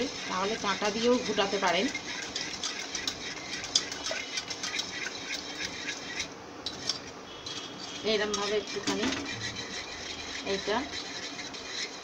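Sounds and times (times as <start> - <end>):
wet stirring: 0.0 - 12.0
beater tapping inside pot: 8.2 - 9.5.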